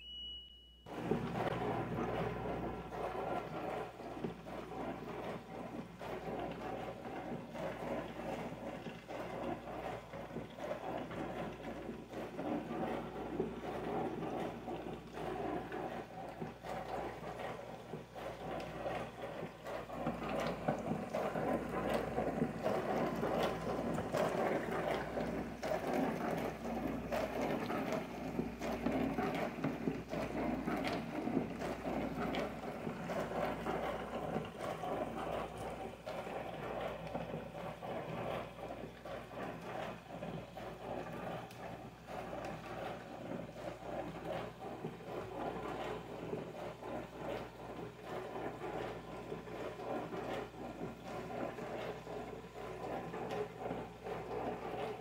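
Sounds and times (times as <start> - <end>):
dishwasher motor hum: 0.0 - 55.0.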